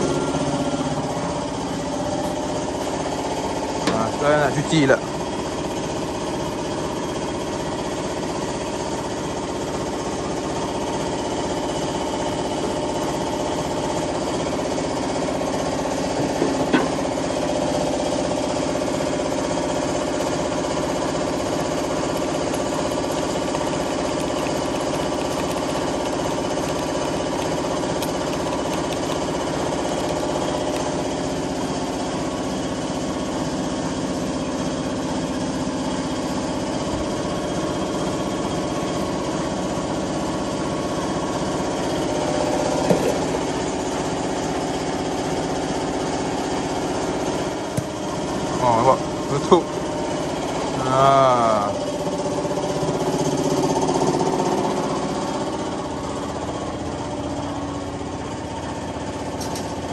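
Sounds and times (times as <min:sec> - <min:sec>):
air compressor running: 0:00.0 - 0:59.9.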